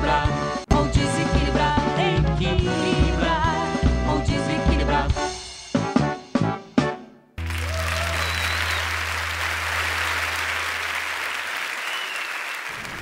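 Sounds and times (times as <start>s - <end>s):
music: 0.0s - 11.2s
people applauding: 7.4s - 13.0s.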